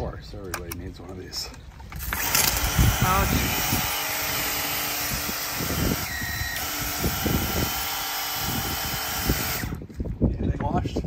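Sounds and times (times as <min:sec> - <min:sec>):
pressure washer motor whirring: 0:02.0 - 0:09.9.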